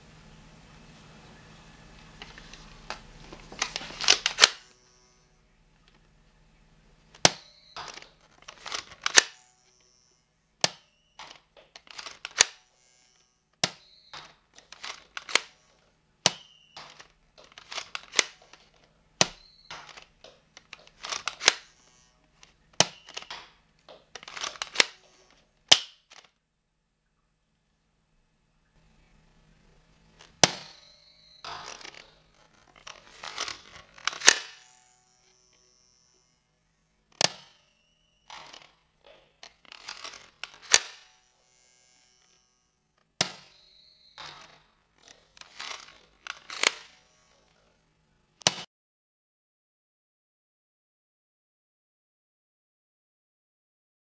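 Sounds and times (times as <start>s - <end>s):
toy blaster plastic snap: 2.2s - 4.8s, 7.1s - 10.0s, 10.6s - 26.4s, 30.2s - 36.3s, 37.1s - 47.7s, 48.4s - 48.7s
plastic rattling: 7.1s - 9.4s, 10.6s - 12.6s, 13.6s - 15.5s, 16.3s - 21.6s, 22.4s - 26.4s, 31.4s - 34.6s, 38.3s - 41.0s.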